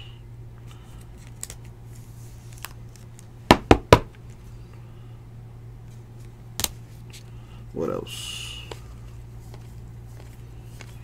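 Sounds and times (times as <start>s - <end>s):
steady low hum: 0.0s - 11.0s
knocks on plastic card holder: 3.5s - 4.1s.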